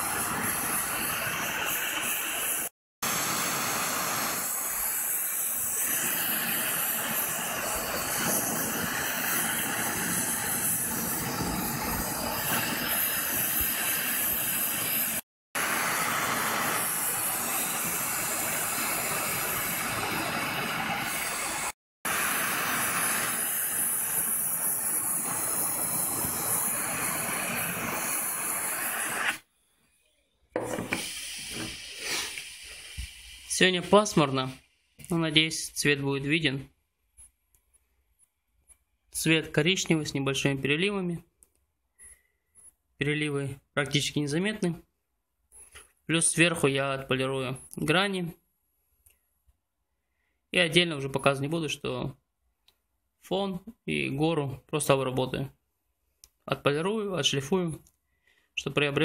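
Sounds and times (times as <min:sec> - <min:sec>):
gas torch flame hissing: 0:00.0 - 0:29.5, 0:30.6 - 0:34.5.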